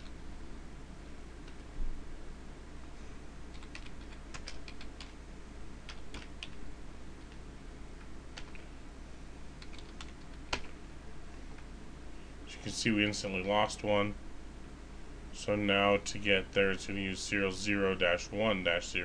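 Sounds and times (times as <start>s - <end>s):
low steady hum: 0.0s - 19.0s
keyboard typing clicks: 3.5s - 5.2s, 5.9s - 6.6s, 8.4s - 8.6s, 9.6s - 10.7s.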